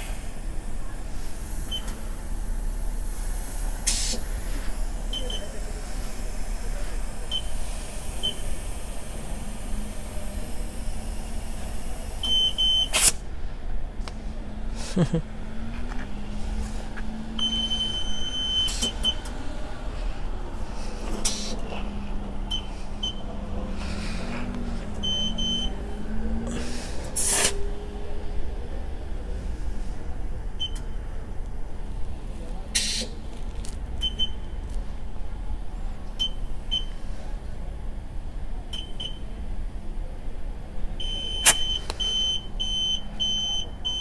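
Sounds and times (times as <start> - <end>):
low steady hum: 0.0 - 12.6
air hissing: 0.0 - 13.2, 20.9 - 21.6, 26.7 - 27.7
short high beeps: 5.1 - 5.6, 41.0 - 44.0.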